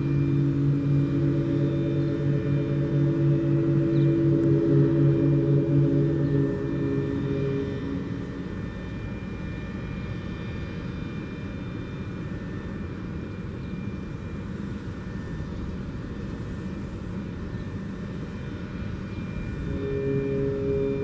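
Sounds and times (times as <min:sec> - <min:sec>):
warning siren tones: 0:00.0 - 0:12.9, 0:17.4 - 0:21.0
continuous low rumbling: 0:00.0 - 0:21.0.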